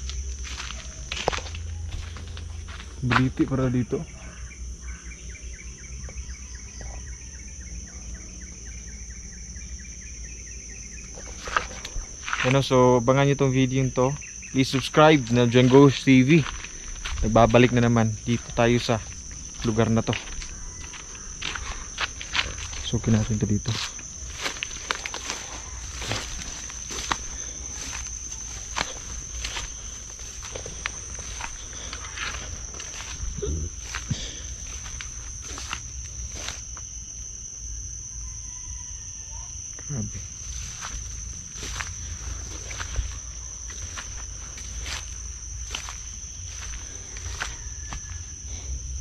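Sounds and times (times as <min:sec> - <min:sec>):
twigs cracking underfoot: 0:00.0 - 0:03.3, 0:14.8 - 0:36.8, 0:40.6 - 0:48.2
footsteps through undergrowth: 0:00.0 - 0:03.4, 0:11.1 - 0:12.7, 0:14.2 - 0:36.9, 0:40.2 - 0:48.5
high-pitched insect drone: 0:00.0 - 0:49.0.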